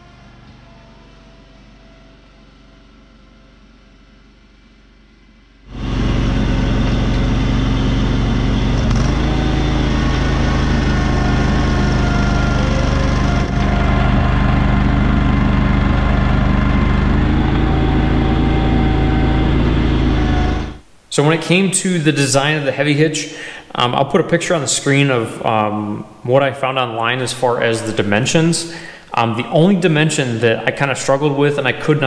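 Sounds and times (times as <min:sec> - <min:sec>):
tractor engine running: 0:00.0 - 0:20.8.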